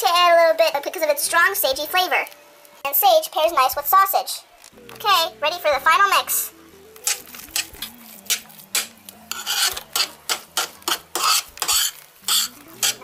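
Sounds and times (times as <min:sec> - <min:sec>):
metal spoon scraping a pan: 0:07.0 - 0:13.0.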